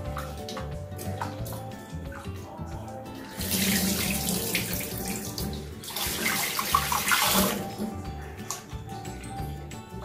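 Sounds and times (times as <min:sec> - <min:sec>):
tap water splashing into bowl: 0:00.0 - 0:02.4
soft background music: 0:00.0 - 0:10.0.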